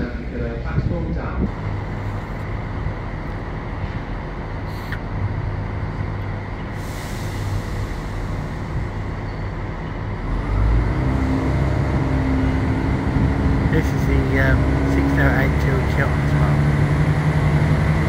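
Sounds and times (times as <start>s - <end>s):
idling train engine rumble: 0.0s - 18.0s
hiss: 6.8s - 8.8s.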